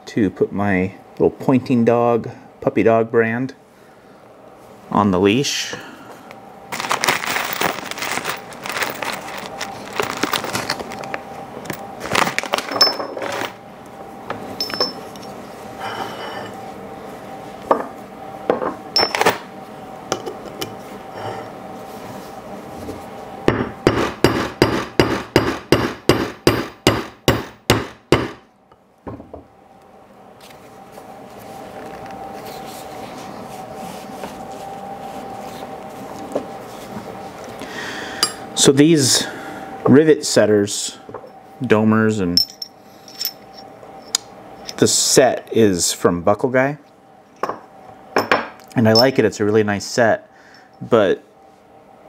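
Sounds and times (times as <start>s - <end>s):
clicks and rustling of handling: 6.3s - 13.5s
hammer striking rivet setter: 23.5s - 28.4s.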